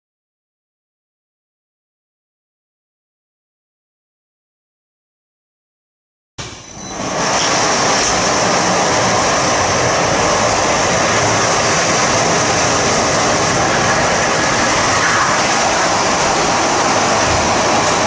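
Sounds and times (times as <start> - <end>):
overhead crane trolley running on rail: 6.4 - 18.0.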